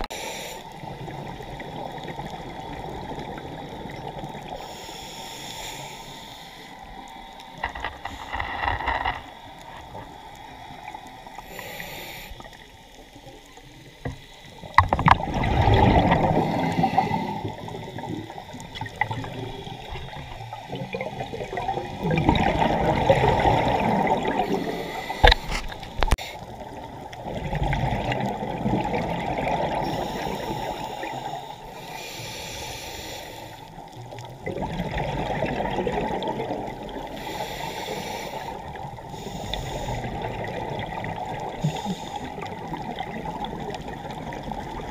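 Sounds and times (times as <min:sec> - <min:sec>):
underwater exhalation bubbles: 0:14.8 - 0:26.1, 0:26.7 - 0:30.0, 0:34.4 - 0:37.0.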